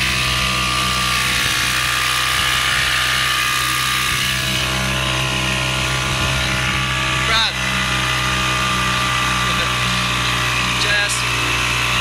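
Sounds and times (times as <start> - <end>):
outboard motor running: 0.0 - 12.0.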